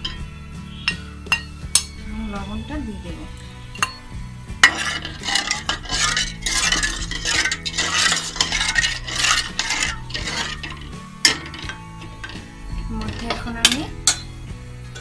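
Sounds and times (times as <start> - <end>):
metal spoon scraping a pan: 0.0 - 1.9, 3.4 - 15.0.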